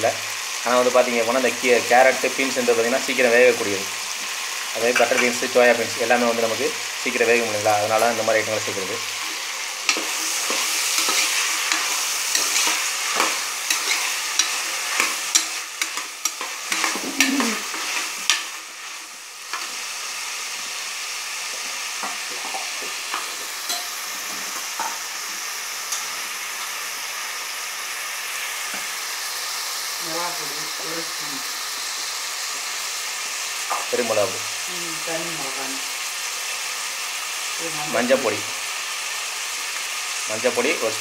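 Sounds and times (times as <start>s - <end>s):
vegetables sizzling in hot oil: 0.0s - 41.0s
metal spoon scraping a pot: 9.2s - 18.4s.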